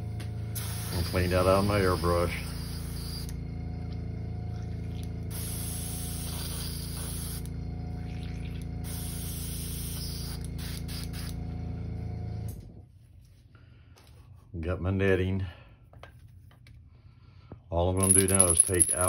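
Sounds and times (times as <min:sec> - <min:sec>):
air compressor humming: 0:00.0 - 0:12.8
airbrush spraying: 0:00.6 - 0:03.3, 0:05.3 - 0:07.5, 0:08.9 - 0:11.3.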